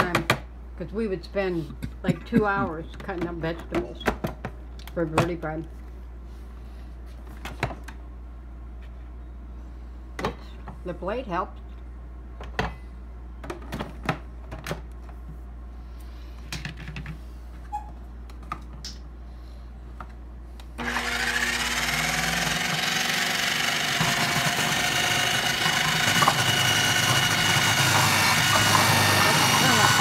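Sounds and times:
food processor motor shredding: 0:20.8 - 0:30.0.

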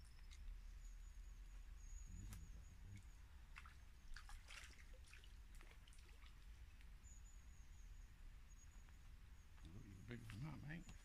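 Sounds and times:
small water splashes: 0:02.9 - 0:07.0.

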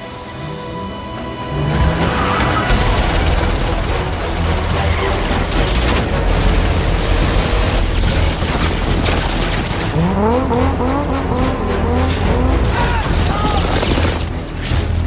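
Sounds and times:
car engine revving hard: 0:09.8 - 0:12.8.

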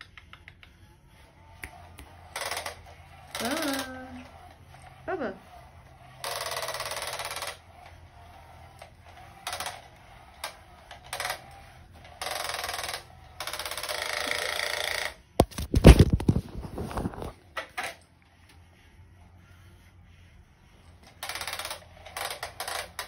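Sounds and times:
phone dropped and handled: 0:15.4 - 0:17.8.

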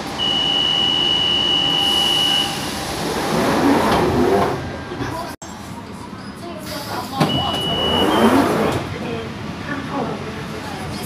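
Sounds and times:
high warning beep: 0:00.2 - 0:02.7, 0:07.3 - 0:08.3
sliding doors rumbling shut: 0:01.7 - 0:05.3, 0:06.7 - 0:09.0.

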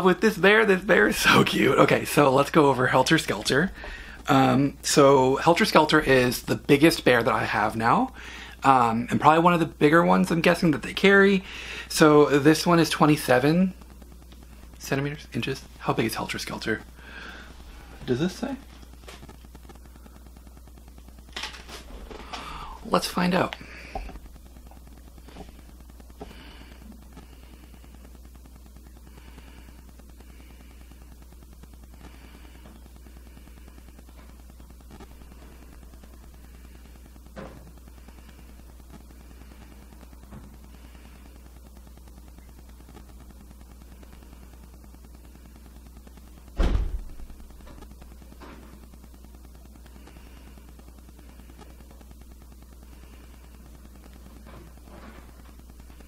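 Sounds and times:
steady low hum: 0:00.0 - 0:56.0
heavy thump: 0:46.6 - 0:47.2.

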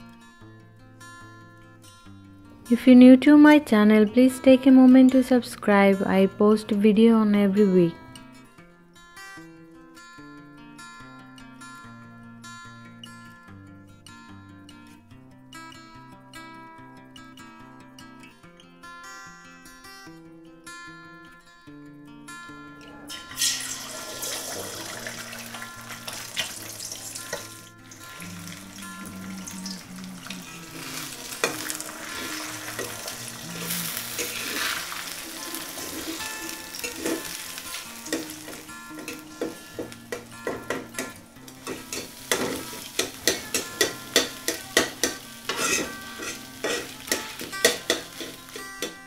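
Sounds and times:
eggs sizzling in hot oil: 0:23.3 - 0:49.0
metal spatula scraping a pan: 0:29.7 - 0:39.3, 0:41.6 - 0:49.0.

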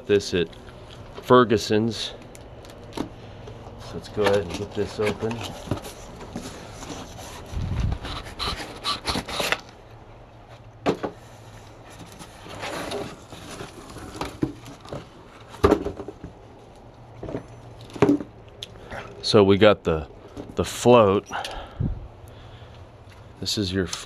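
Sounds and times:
cardboard rubbing and scraping: 0:03.8 - 0:09.7, 0:12.0 - 0:15.6.

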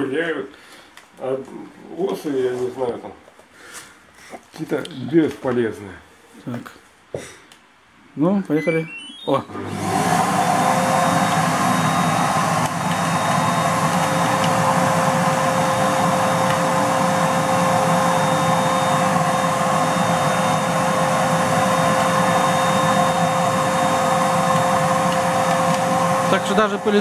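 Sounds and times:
vacuum cleaner running: 0:09.5 - 0:27.0.

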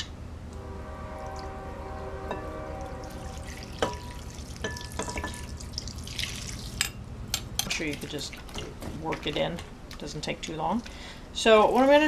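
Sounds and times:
faint steady hum: 0:00.0 - 0:12.0
liquid pouring onto cloth: 0:03.6 - 0:06.8
glass clinks: 0:04.6 - 0:05.5.

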